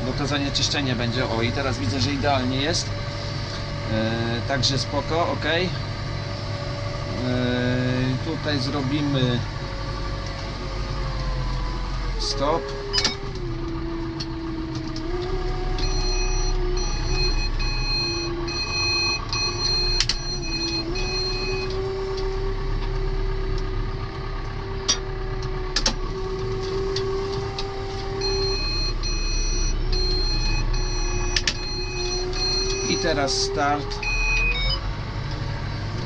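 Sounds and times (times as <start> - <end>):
tractor engine running: 0.0 - 36.0
repeating electronic beep: 28.2 - 33.2, 34.0 - 34.8.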